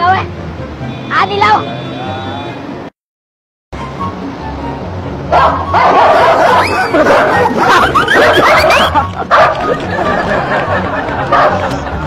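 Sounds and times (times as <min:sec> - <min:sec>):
person imitating dog yips: 0:05.5 - 0:09.0.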